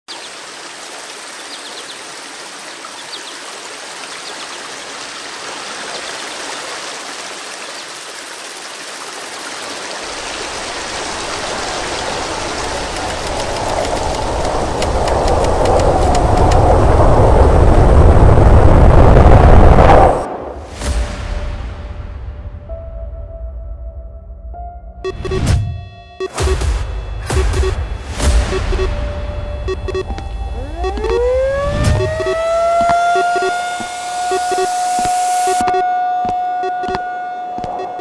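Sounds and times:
stream running over rocks: 0:00.1 - 0:16.6
low rumbling wind roar: 0:10.4 - 0:20.9.

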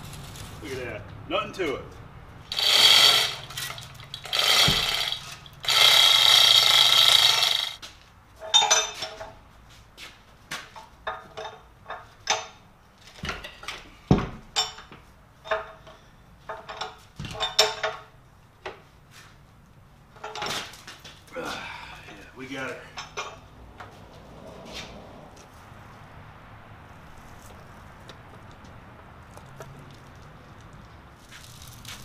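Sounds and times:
iron scraping on steel: 0:02.5 - 0:07.8
metallic clinks and knocks: 0:08.4 - 0:09.4, 0:14.5 - 0:18.1, 0:22.9 - 0:23.5.

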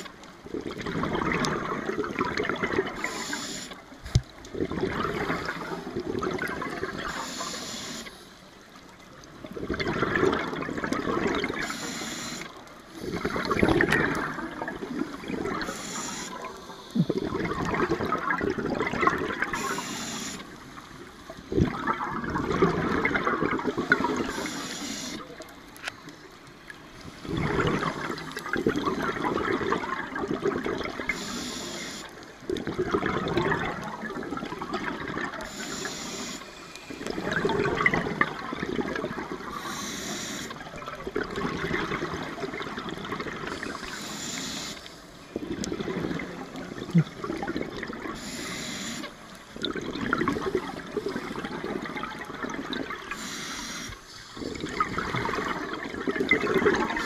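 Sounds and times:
bubbling exhalation underwater: 0:00.5 - 0:03.0, 0:04.5 - 0:07.2, 0:09.4 - 0:11.6, 0:13.0 - 0:15.7, 0:16.9 - 0:19.8, 0:21.5 - 0:24.4, 0:27.2 - 0:31.2, 0:32.6 - 0:35.4, 0:37.1 - 0:39.5, 0:41.0 - 0:43.8, 0:45.4 - 0:48.2, 0:49.6 - 0:53.2, 0:54.4 - 0:57.0
regulator inhalation hiss: 0:03.0 - 0:03.8, 0:07.1 - 0:08.3, 0:11.6 - 0:13.2, 0:15.6 - 0:17.2, 0:19.6 - 0:20.6, 0:24.2 - 0:25.2, 0:31.1 - 0:32.1, 0:35.4 - 0:37.1, 0:39.5 - 0:40.6, 0:43.8 - 0:45.2, 0:48.2 - 0:49.2, 0:53.1 - 0:54.4.

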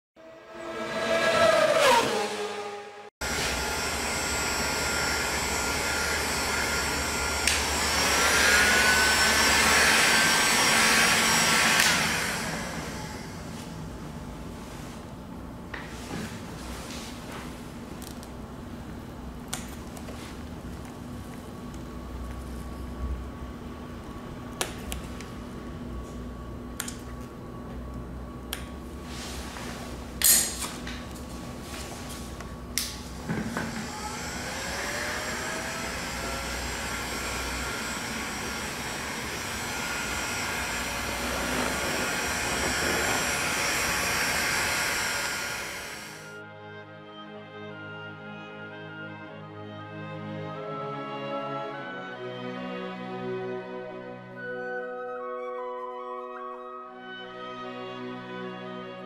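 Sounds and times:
heat gun fan whining: 0:03.2 - 0:14.5, 0:17.2 - 0:46.4
click: 0:07.4 - 0:07.6
steady low hum: 0:12.6 - 0:46.3.

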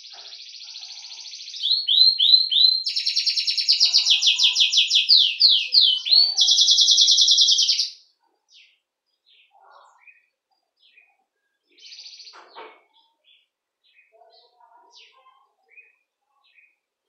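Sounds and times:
canary trilling: 0:00.0 - 0:08.8
soft bird chirps: 0:00.0 - 0:16.9.

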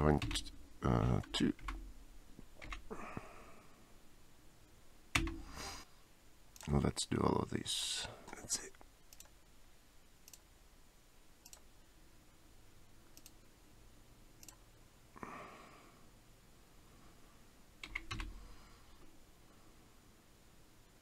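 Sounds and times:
keyboard keystrokes: 0:05.2 - 0:05.4, 0:17.8 - 0:18.3
computer mouse clicks: 0:09.1 - 0:09.4, 0:10.2 - 0:10.4, 0:11.4 - 0:11.7, 0:13.1 - 0:13.4, 0:14.4 - 0:14.6, 0:17.8 - 0:18.3.

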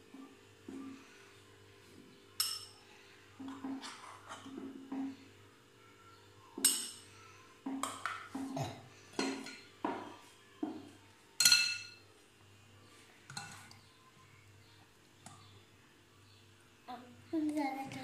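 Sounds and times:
metal spoon clinking on glass: 0:02.4 - 0:02.8, 0:11.4 - 0:12.0.

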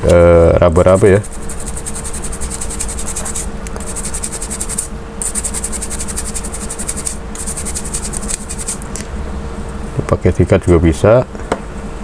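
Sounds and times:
low hum: 0:00.0 - 0:10.1
fingertips scratching metal stencil: 0:00.7 - 0:08.8.

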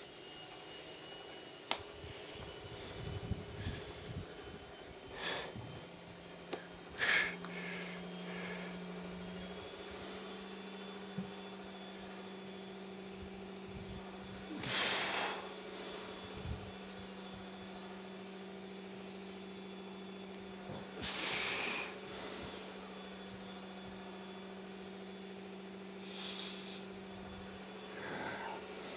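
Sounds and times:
steady low hum: 0:00.0 - 0:28.9
short hissing bursts: 0:26.0 - 0:26.8.

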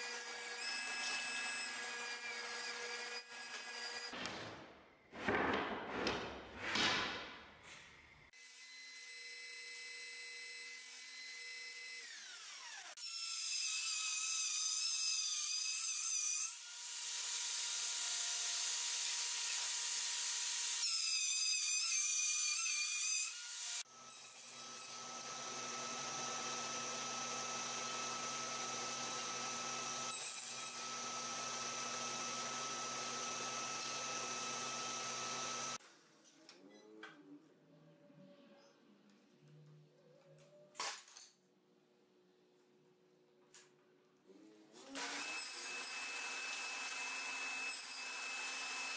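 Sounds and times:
blade cutting through wood: 0:10.6 - 0:35.8, 0:44.9 - 0:48.9.

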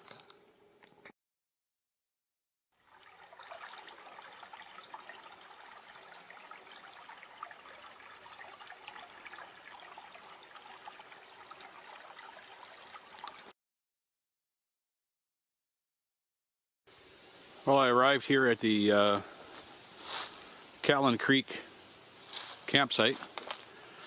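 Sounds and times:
creek trickling: 0:02.8 - 0:13.5, 0:16.9 - 0:24.0.

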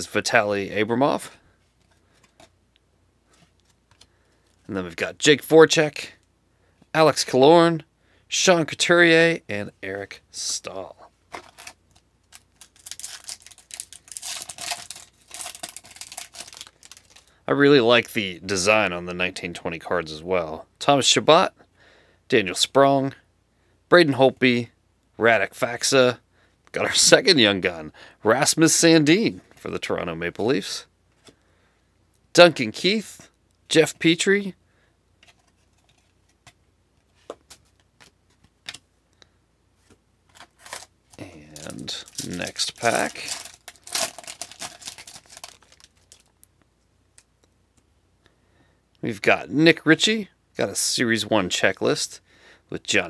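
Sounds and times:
foil wrapper tearing and crinkling: 0:11.4 - 0:17.3, 0:40.3 - 0:40.9, 0:41.5 - 0:46.3.

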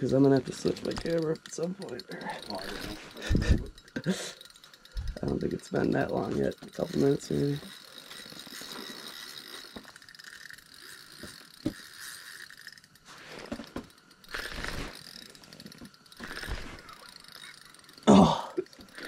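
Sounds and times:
fishing reel drag ticking: 0:00.0 - 0:19.0.

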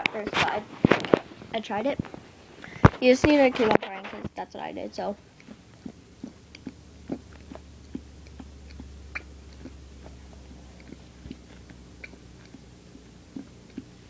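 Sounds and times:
low steady hum: 0:00.0 - 0:14.0
wet mouth clicks and smacks: 0:05.4 - 0:14.0.

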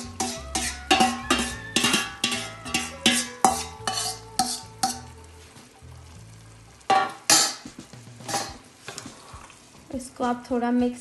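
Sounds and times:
metal spoon clanking in bowl: 0:00.0 - 0:05.1
soft sizzle: 0:00.0 - 0:11.0.

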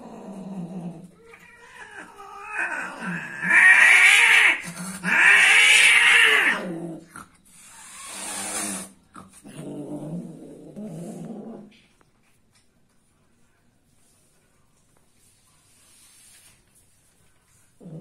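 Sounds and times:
cat growling: 0:00.0 - 0:11.9, 0:17.8 - 0:18.0
cat yowling: 0:01.3 - 0:06.6
cat hissing: 0:01.3 - 0:06.7, 0:07.5 - 0:09.4.

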